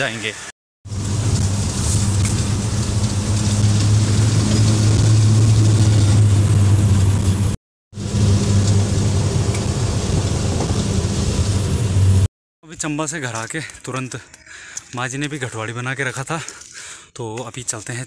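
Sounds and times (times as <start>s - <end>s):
road noise: 0.0s - 12.3s
truck engine droning: 0.9s - 12.3s.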